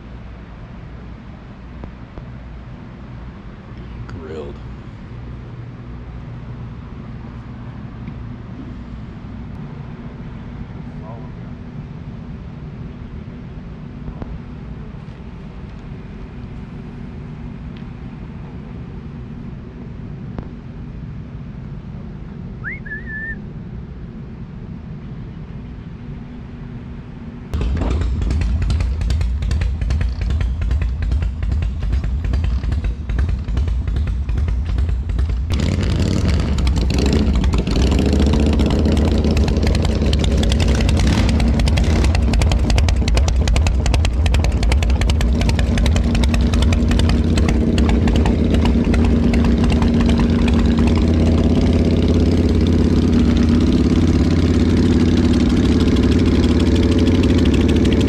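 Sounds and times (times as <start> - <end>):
motorcycle engines idling: 25.0 - 58.0.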